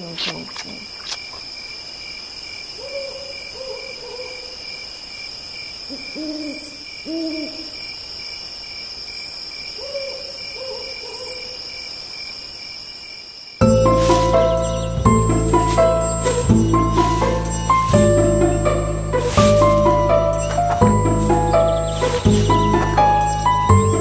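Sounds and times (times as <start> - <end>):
insects chirring: 0.0 - 24.0
owl hooting: 5.9 - 7.8.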